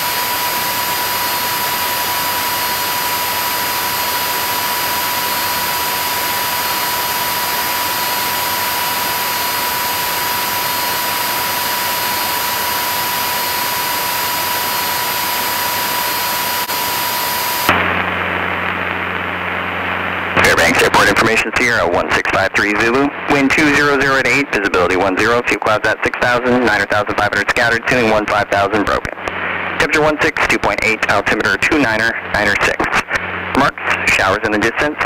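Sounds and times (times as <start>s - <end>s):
airplane engine and propeller roar: 0.0s - 21.3s.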